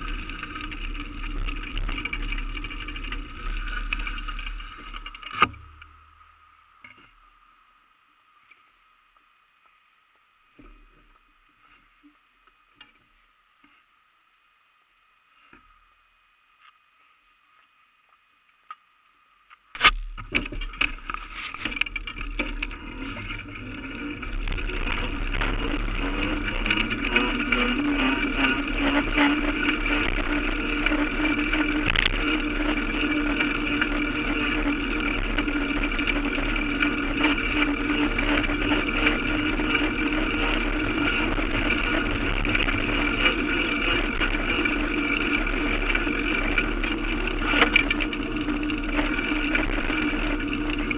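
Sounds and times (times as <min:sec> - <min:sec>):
vehicle engine: 0:00.0 - 0:06.5, 0:19.9 - 0:50.9
road noise: 0:20.4 - 0:50.9.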